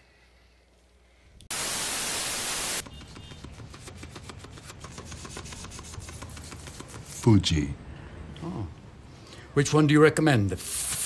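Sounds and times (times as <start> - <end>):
loud static hiss: 1.5 - 2.8.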